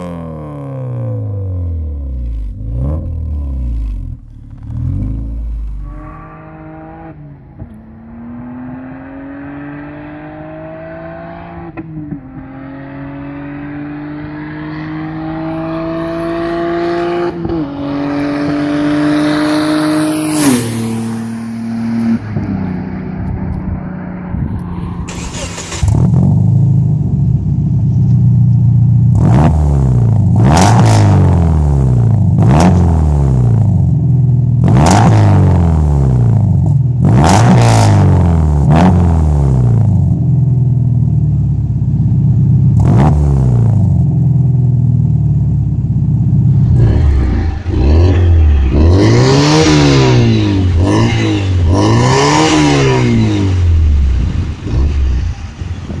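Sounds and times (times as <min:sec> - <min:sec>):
car exhaust revving: 0:00.0 - 0:56.0
car accelerating through gears: 0:46.6 - 0:56.0.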